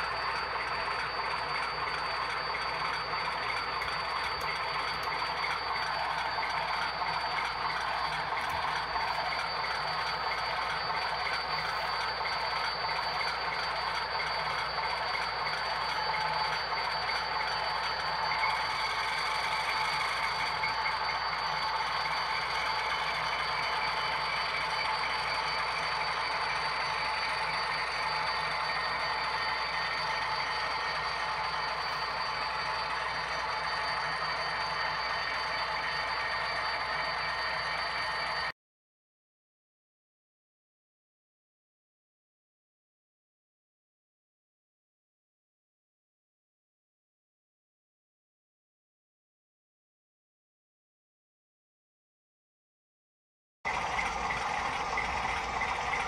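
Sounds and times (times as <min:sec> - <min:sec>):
model locomotive running: 0:00.0 - 0:38.5, 0:53.7 - 0:56.0.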